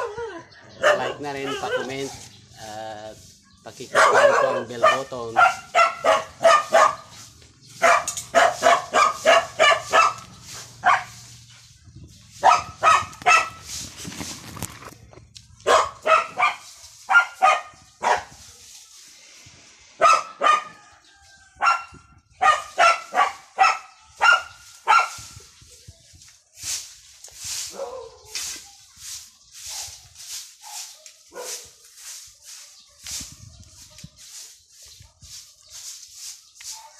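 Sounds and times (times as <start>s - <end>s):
dog barking: 0.8s - 2.3s, 3.9s - 7.1s, 7.8s - 10.2s, 10.8s - 11.2s, 12.4s - 13.6s, 15.6s - 18.3s, 20.0s - 20.8s, 21.6s - 25.2s, 27.7s - 28.3s, 30.6s - 31.6s.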